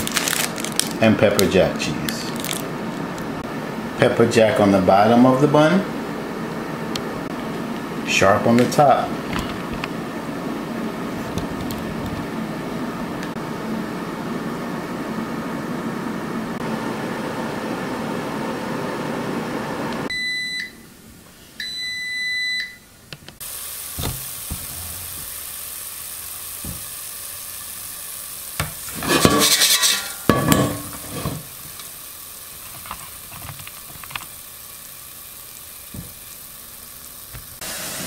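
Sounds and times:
hot fries sizzling: 0.0 - 4.4, 23.4 - 38.0
air fryer fan: 0.0 - 20.6, 23.4 - 38.0.

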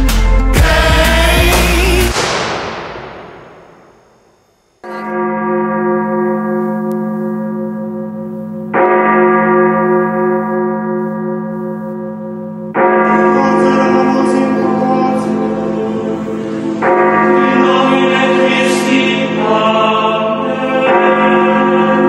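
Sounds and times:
pop song: 0.0 - 2.5, 13.9 - 21.8
deep bell tolling: 2.6 - 19.8.

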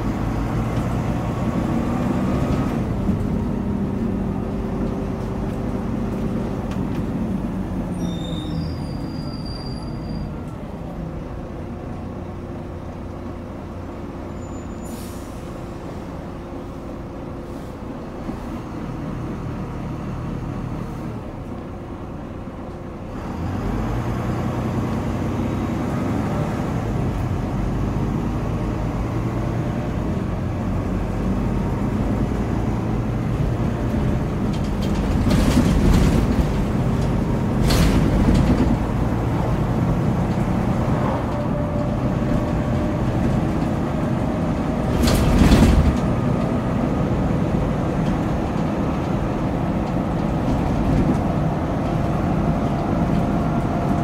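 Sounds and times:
bus engine running: 0.0 - 54.0.

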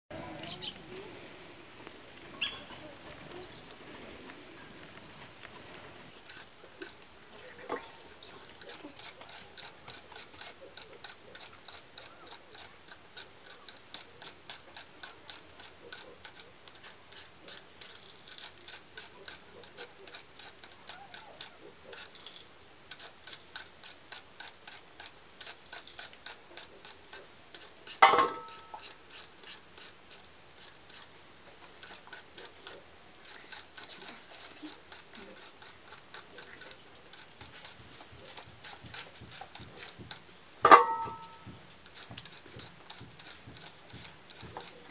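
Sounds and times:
knives scraping potatoes: 6.1 - 44.9.

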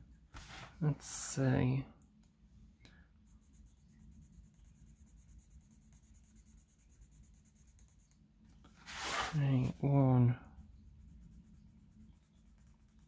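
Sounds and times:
pencil scratching on paper: 3.3 - 8.2, 10.5 - 13.0.

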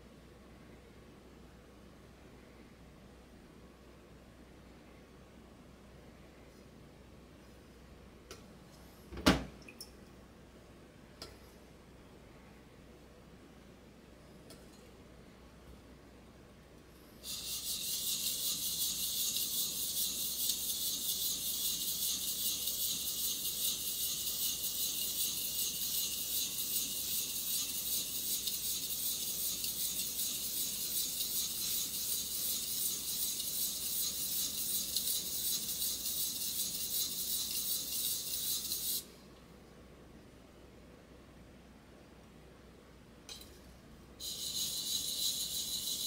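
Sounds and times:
knife scraping on whetstone: 44.2 - 46.0.

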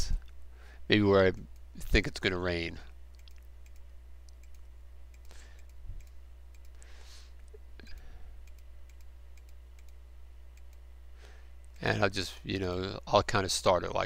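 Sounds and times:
low electrical hum: 0.0 - 14.0
faint computer mouse clicks: 3.2 - 6.8.

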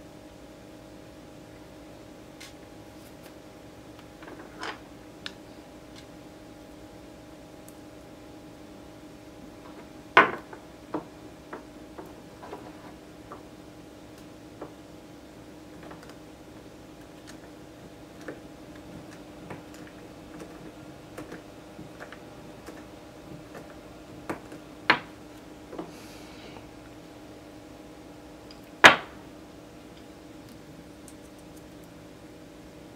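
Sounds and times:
faint steady hum: 0.0 - 32.9.

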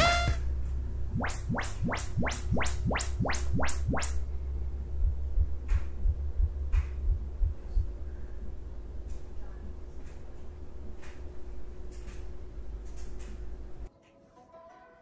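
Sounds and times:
rising test tone sweeps: 1.1 - 4.2.

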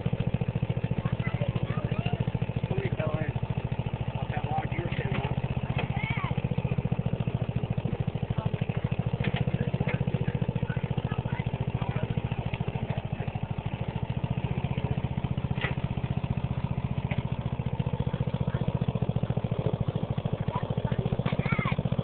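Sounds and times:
riding lawn mower engine running: 0.0 - 22.0.

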